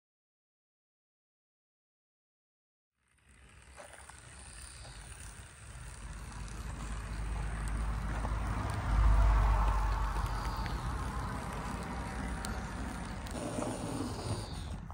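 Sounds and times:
model train running on track: 3.0s - 14.9s
faint clicks: 4.1s - 13.4s.

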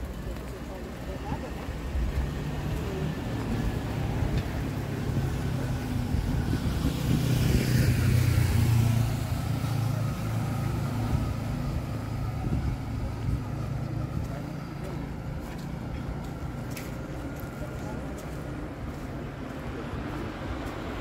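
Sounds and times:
road traffic: 0.0s - 21.0s
vehicle passing close: 2.2s - 14.1s.

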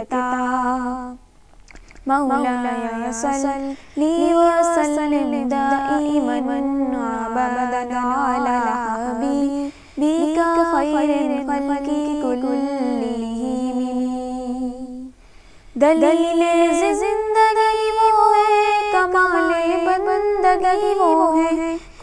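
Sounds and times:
person singing unaccompanied: 2.0s - 15.2s, 15.8s - 22.0s.

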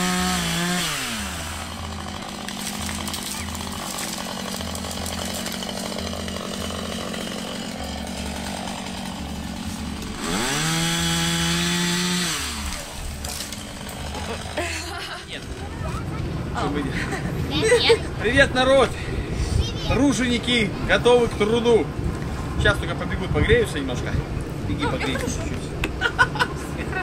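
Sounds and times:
chainsaw revving and idling: 0.0s - 16.7s.

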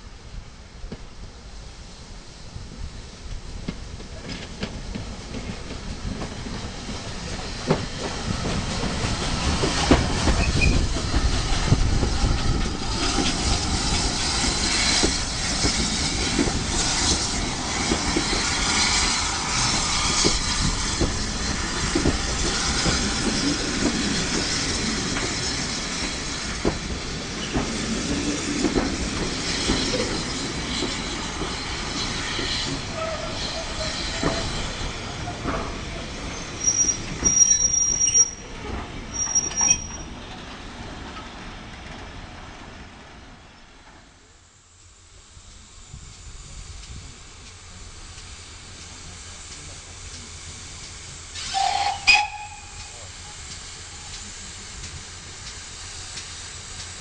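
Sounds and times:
train wheels clattering: 3.3s - 42.5s
high wheel squeal: 10.4s - 10.9s, 32.9s - 34.9s, 36.3s - 40.2s, 51.4s - 53.0s.

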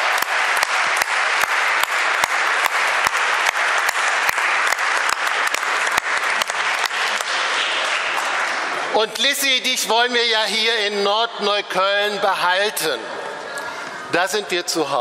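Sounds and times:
loud single claps: 0.0s - 8.6s
audience applauding: 0.0s - 8.9s.

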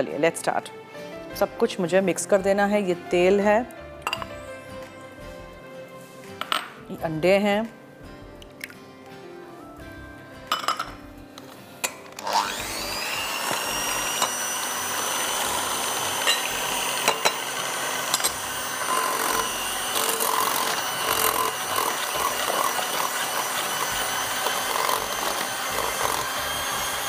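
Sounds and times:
electric hand mixer whirring: 12.2s - 27.0s.

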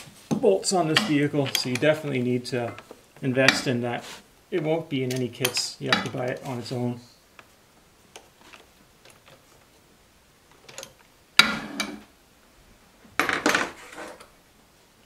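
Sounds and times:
metal tools clinking: 0.9s - 3.8s.

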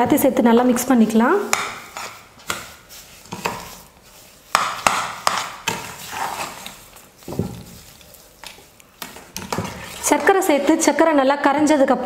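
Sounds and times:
ladle scraping a pan: 1.8s - 10.9s.

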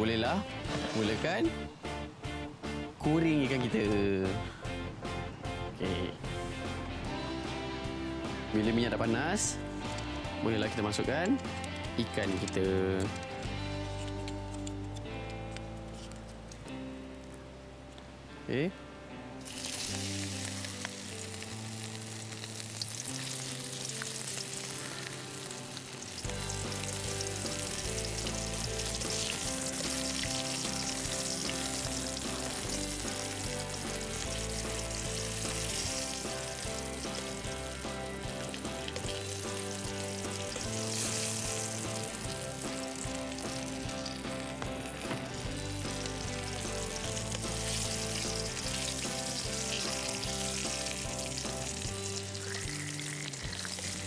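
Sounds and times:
background music: 0.0s - 54.0s
fish frying in hot oil: 19.4s - 54.0s.

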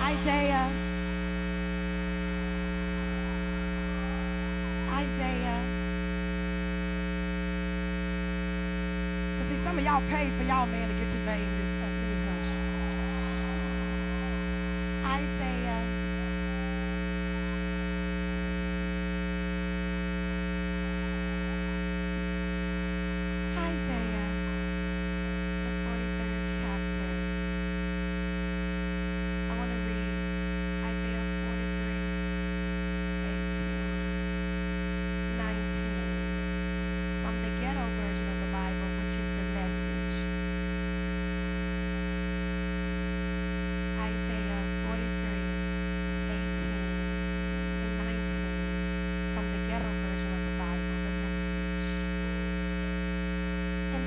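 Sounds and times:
faint voices: 0.0s - 6.5s, 9.3s - 18.9s
electrical hum: 0.0s - 54.0s.

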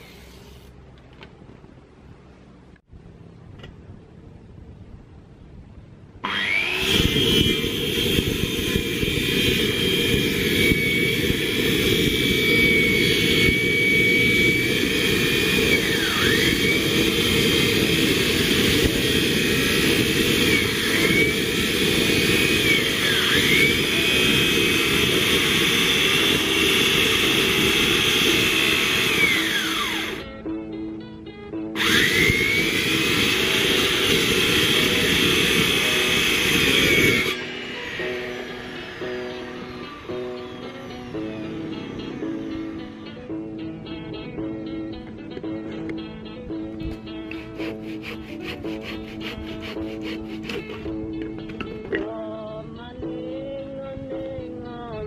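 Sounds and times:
circular saw cutting wood: 6.2s - 30.4s, 31.8s - 43.4s, 47.0s - 51.7s.

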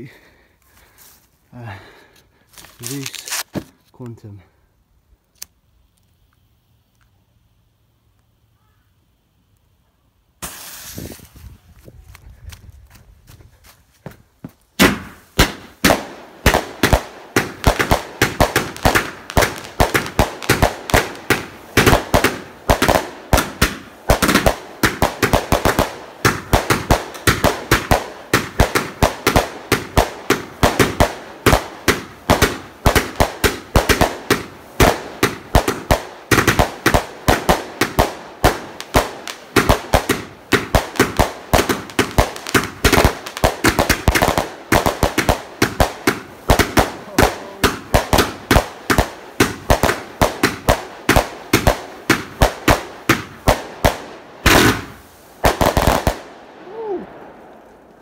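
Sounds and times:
firework bangs: 10.4s - 11.4s, 14.8s - 56.4s.

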